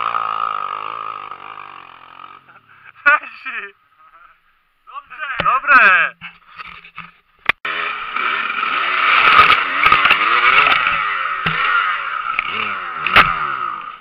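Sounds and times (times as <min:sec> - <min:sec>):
dirt bike engine revving: 0:00.0 - 0:02.9, 0:07.6 - 0:14.0
sharp knocks: 0:09.9 - 0:11.7.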